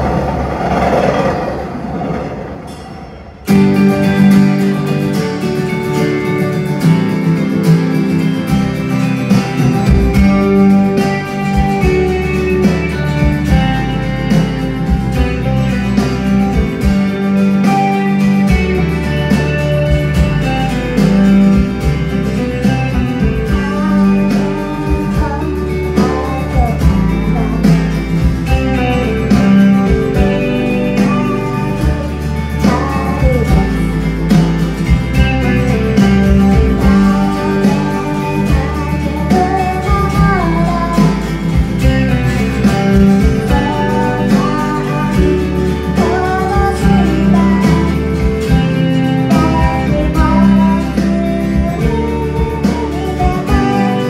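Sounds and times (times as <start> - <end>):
acoustic guitar strumming: 0.0 - 54.0
woman singing: 23.2 - 28.2, 29.2 - 34.4, 35.5 - 54.0.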